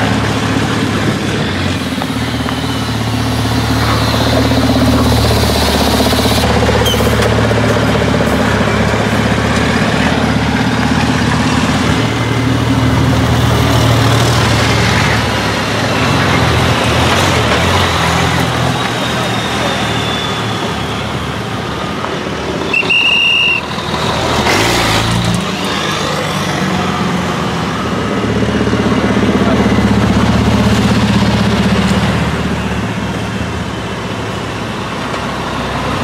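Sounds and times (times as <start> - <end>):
diesel truck engines at low revs: 0.0 - 36.0.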